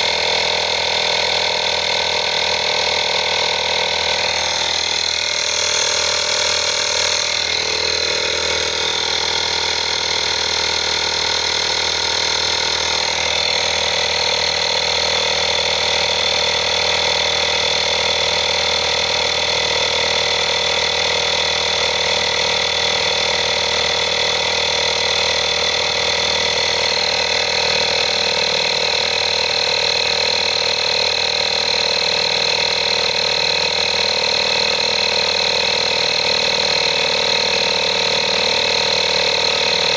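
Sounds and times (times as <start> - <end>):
tyre inflator running: 0.0 - 39.9.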